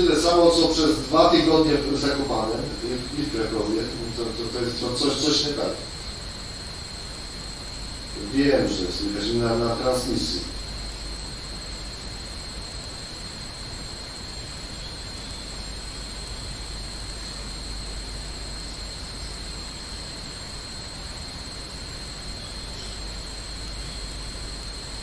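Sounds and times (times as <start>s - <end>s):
high-pitched whines: 0.0s - 25.0s
steady hiss: 0.0s - 25.0s.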